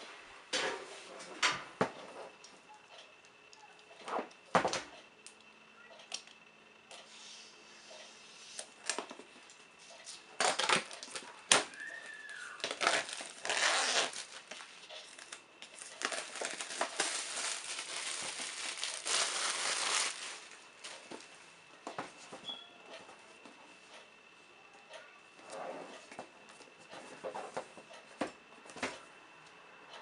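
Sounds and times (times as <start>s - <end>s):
plastic shrink-wrap crinkling: 10.4s - 20.6s.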